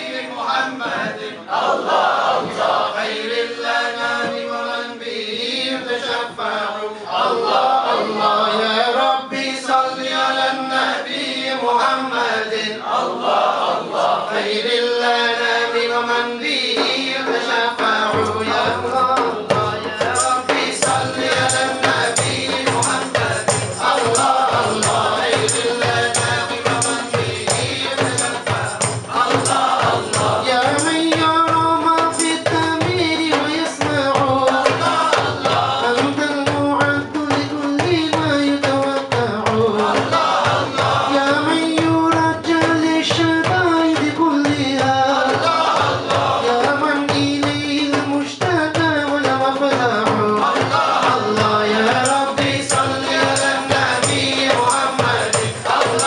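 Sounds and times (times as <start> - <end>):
men singing together: 0.0 - 56.0
frame drums: 15.4 - 56.0
jingling tambourine: 19.6 - 34.3, 51.4 - 56.0.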